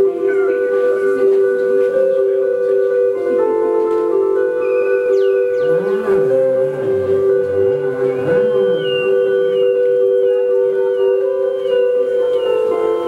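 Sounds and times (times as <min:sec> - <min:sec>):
electronic drone of held tones: 0:04.2 - 0:13.0
warbling pitch sweeps: 0:04.6 - 0:10.5.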